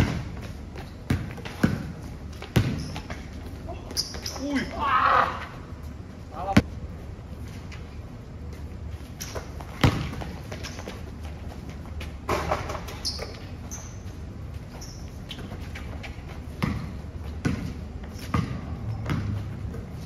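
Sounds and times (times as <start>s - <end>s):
basketball bouncing on hard court: 0.0s - 4.4s, 9.4s - 11.0s, 16.5s - 20.0s
sneaker squeaks: 0.0s - 5.6s, 8.9s - 20.0s.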